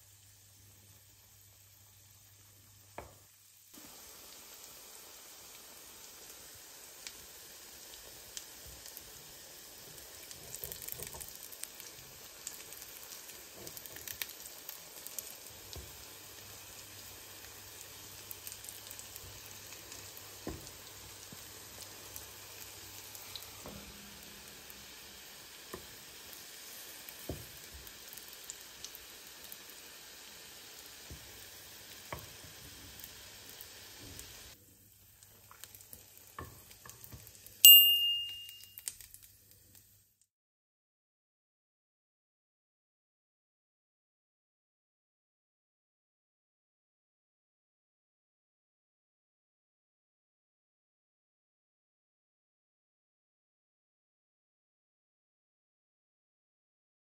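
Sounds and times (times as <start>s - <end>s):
food frying in hot oil: 0.0s - 40.2s.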